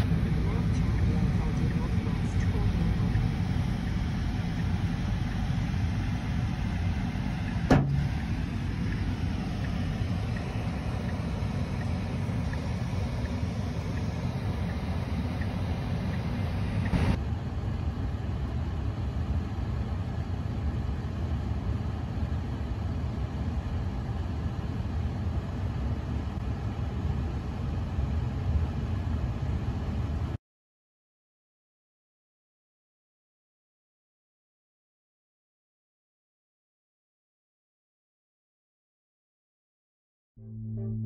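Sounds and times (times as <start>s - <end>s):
road and tyre rumble: 0.0s - 30.4s.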